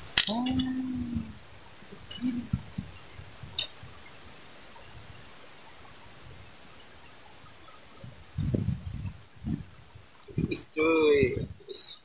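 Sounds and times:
sharp handling noises: 0.0s - 1.3s
faint outdoor background: 0.0s - 12.0s.

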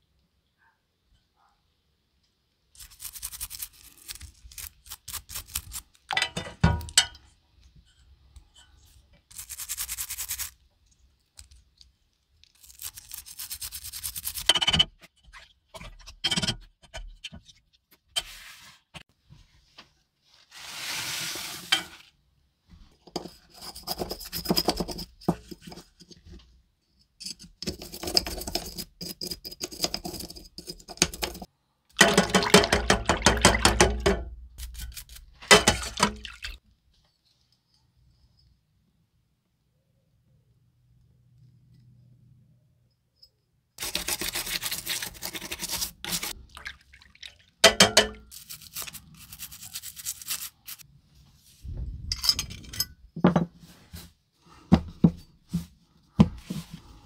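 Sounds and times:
toothbrush scrubbing metal in water: 2.8s - 5.9s, 8.6s - 10.6s, 12.4s - 16.0s, 27.2s - 31.5s, 34.6s - 36.0s, 43.8s - 47.1s, 47.7s - 50.8s.

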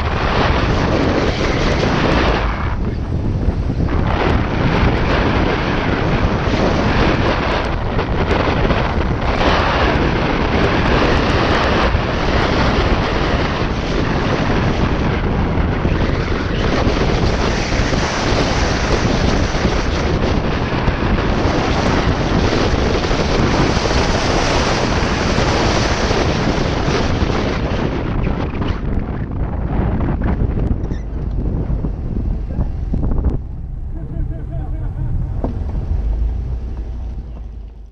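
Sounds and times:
car engine: 0.0s - 13.5s, 29.3s - 37.9s
wind buffeting microphone: 0.0s - 37.9s
tyre noise: 29.7s - 37.9s.

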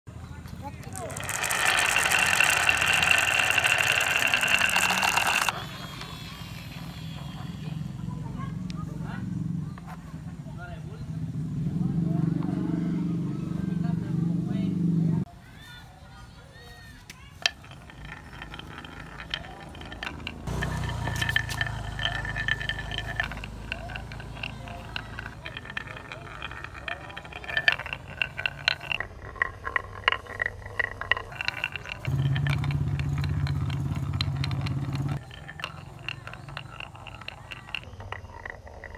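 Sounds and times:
glass marbles clattering on wood: 0.4s - 7.9s, 17.1s - 38.9s
steady ringing tone: 1.0s - 8.2s.

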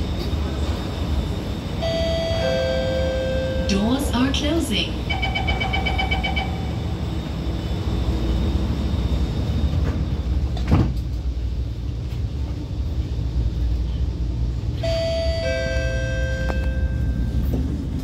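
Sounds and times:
train humming: 0.0s - 18.0s
train doors thudding shut: 9.7s - 11.3s.

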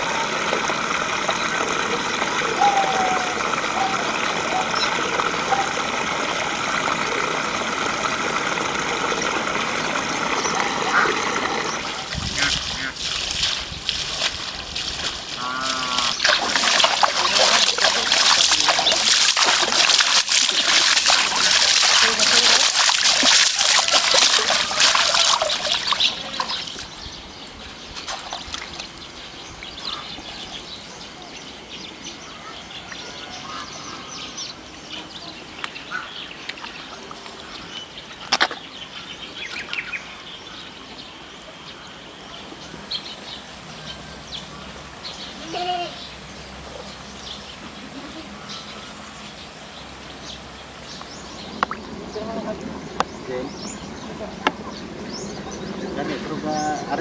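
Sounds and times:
water splashing by hand: 0.0s - 27.0s
bird calls: 0.0s - 57.0s.

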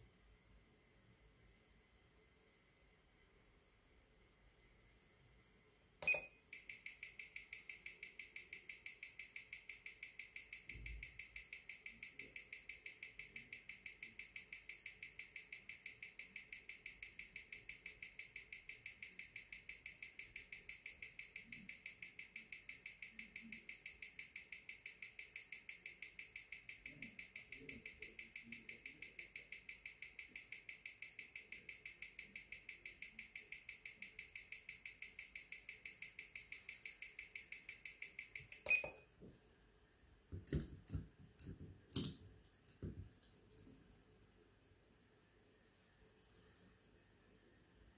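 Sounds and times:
watch ticking fast: 6.6s - 38.7s.

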